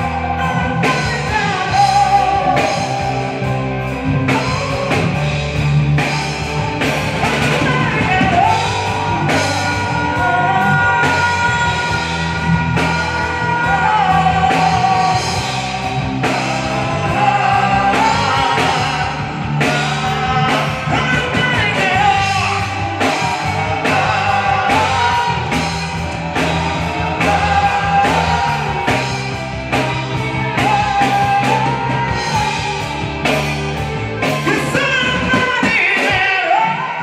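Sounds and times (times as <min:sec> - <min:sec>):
person singing long notes: 0:00.0 - 0:37.0
rock band playing: 0:00.0 - 0:37.0.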